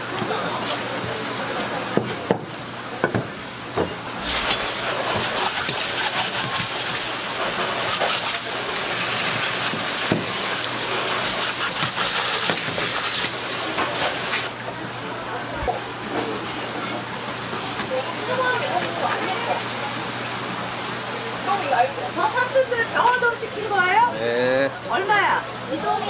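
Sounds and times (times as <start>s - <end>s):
hose spray hissing: 4.2s - 14.5s.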